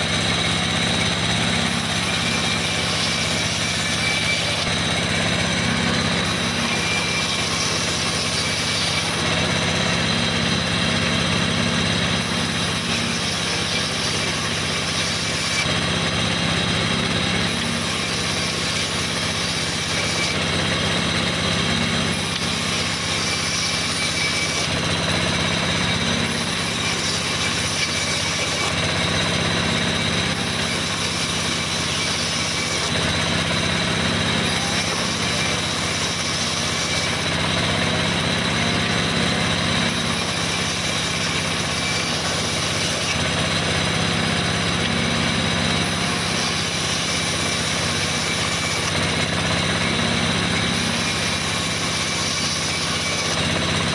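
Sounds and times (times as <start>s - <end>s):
band saw cutting wood: 0.0s - 53.9s
motor hum: 0.0s - 53.9s.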